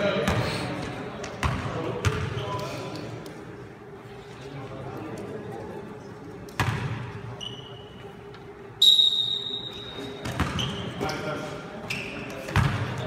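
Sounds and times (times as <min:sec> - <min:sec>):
basketball bouncing on gym floor: 0:01.2 - 0:02.3, 0:10.2 - 0:10.7
sneaker squeak: 0:07.3 - 0:08.2, 0:08.8 - 0:13.0
referee's whistle blast: 0:08.8 - 0:10.1.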